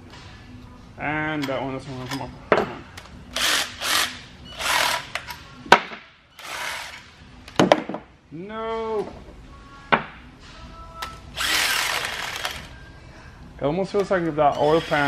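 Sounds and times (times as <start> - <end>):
impact driver bursts: 11.4 - 12.7.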